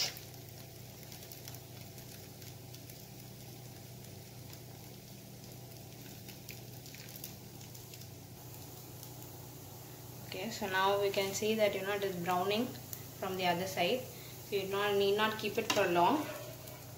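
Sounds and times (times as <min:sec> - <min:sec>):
batter sizzling with crackles: 0:00.0 - 0:16.9
steady low hum: 0:00.0 - 0:16.9.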